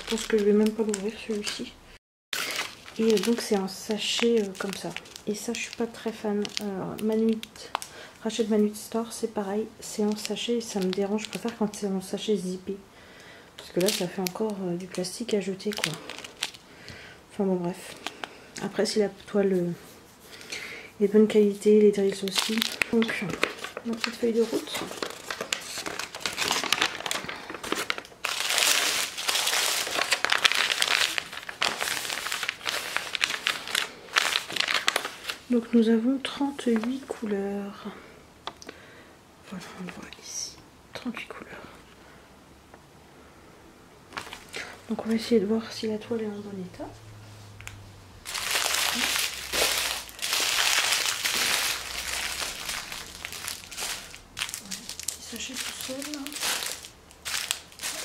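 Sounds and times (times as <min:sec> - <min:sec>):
paper crinkling and rustling: 0:00.0 - 0:01.7, 0:02.4 - 0:07.9, 0:09.9 - 0:12.2, 0:13.6 - 0:16.6, 0:21.7 - 0:37.3, 0:44.1 - 0:45.1, 0:48.2 - 0:58.0.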